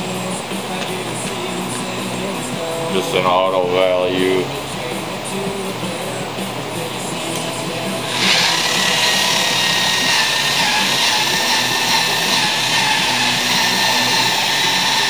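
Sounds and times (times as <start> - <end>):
polishing buffer motor whine: 8.0 - 15.0.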